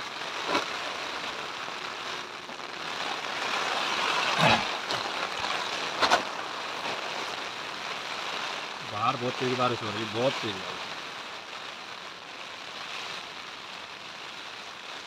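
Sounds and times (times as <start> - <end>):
heavy rain on tent: 0.0 - 15.0.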